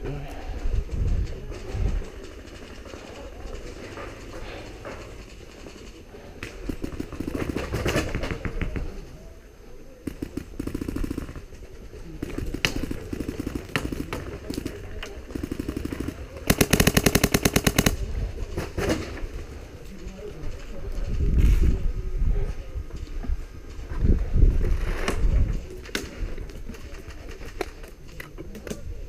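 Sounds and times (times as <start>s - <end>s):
rapid gunfire bursts: 6.5s - 8.7s, 10.0s - 19.0s.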